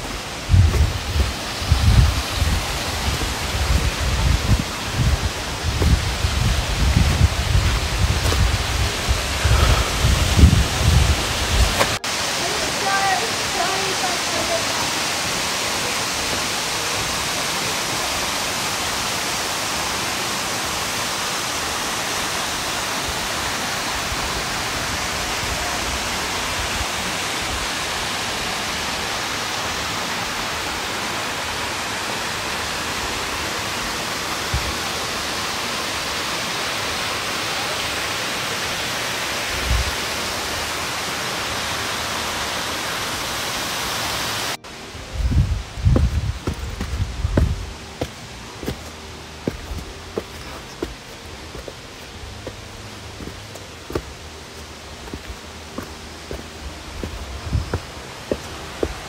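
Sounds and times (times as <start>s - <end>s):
soft low thumps: 0.0s - 12.0s, 45.2s - 59.0s
waterfall rushing: 0.0s - 59.0s.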